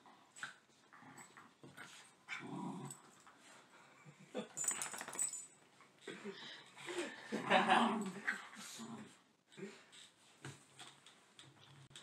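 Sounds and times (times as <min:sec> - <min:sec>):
dogs growling in play: 0:00.9 - 0:04.2, 0:07.3 - 0:09.8.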